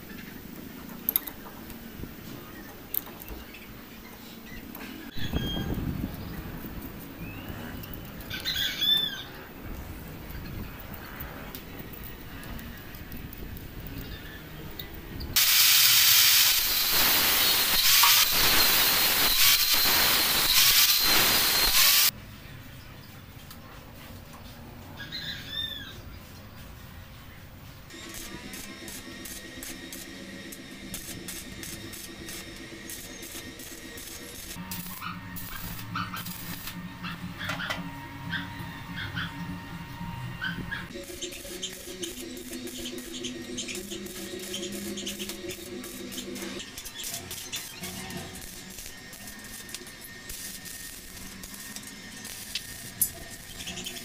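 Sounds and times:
welding arc crackling: 14.9s - 22.2s, 27.9s - 37.7s, 40.9s - 54.0s
angle grinder cutting steel: 15.4s - 22.1s, 27.9s - 54.0s.

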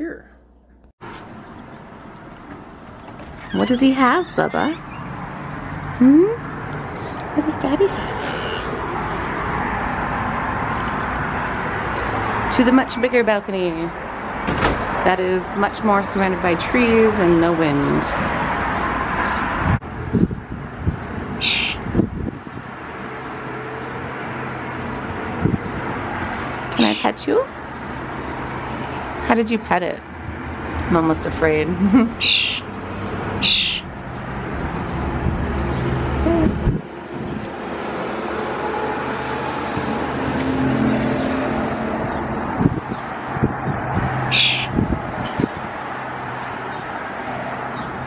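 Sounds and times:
outdoor background noise: 0.0s - 48.0s
road traffic: 0.8s - 48.0s
starling harsh chirp: 3.4s - 5.5s, 21.4s - 21.9s, 26.7s - 27.2s, 32.2s - 32.7s, 33.4s - 33.9s, 44.2s - 45.5s.

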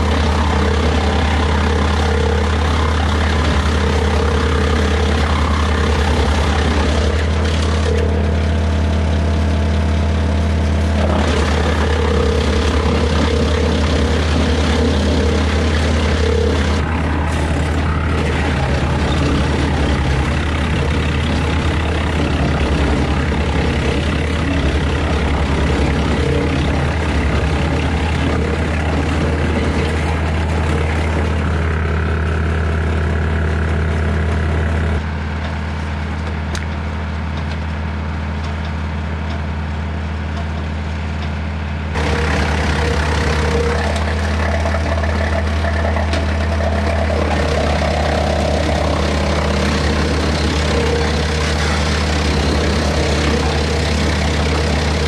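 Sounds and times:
tractor engine hum: 0.0s - 55.0s
wood chipper chewing wood: 0.0s - 55.0s.

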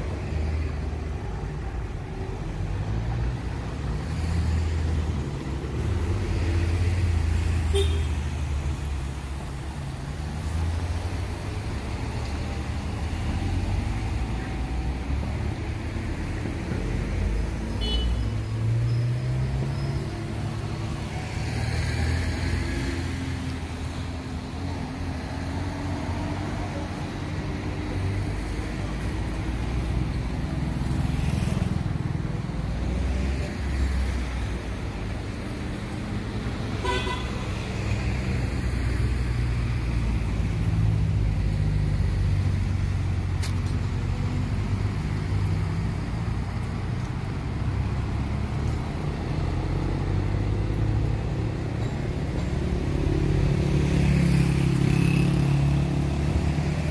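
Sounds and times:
traffic passing: 0.0s - 56.9s
car horn toot: 7.7s - 8.2s, 17.8s - 18.3s, 36.8s - 37.4s.

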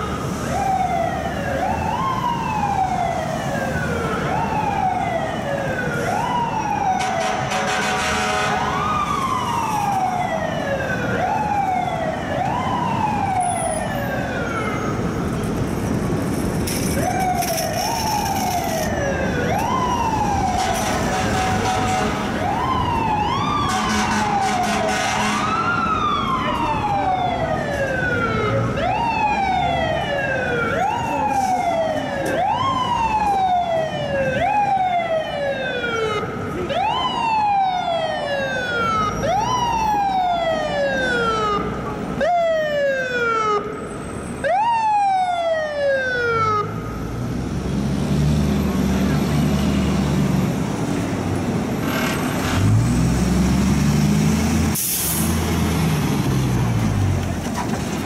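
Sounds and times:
fire truck siren bursts: 0.0s - 15.2s, 16.7s - 47.2s, 54.5s - 56.6s
diesel engine revving: 47.2s - 58.0s.

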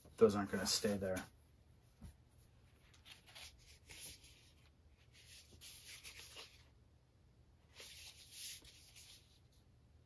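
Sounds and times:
paper sleeve rustling: 2.8s - 6.7s.

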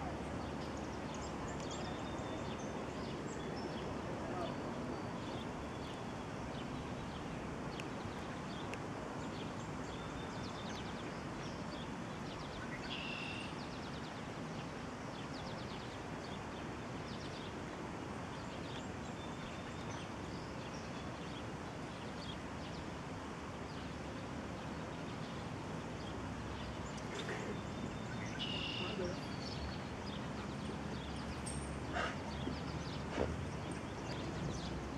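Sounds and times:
bird chirps and trills: 26.6s - 34.8s.

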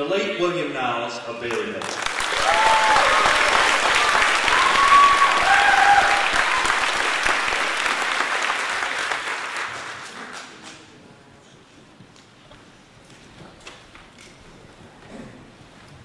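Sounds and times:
audience applauding: 1.5s - 10.9s
short cheers: 2.2s - 7.0s.

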